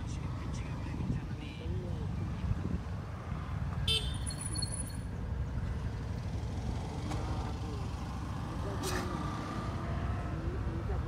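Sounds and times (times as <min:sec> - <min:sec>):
wind buffeting microphone: 0:00.8 - 0:03.7.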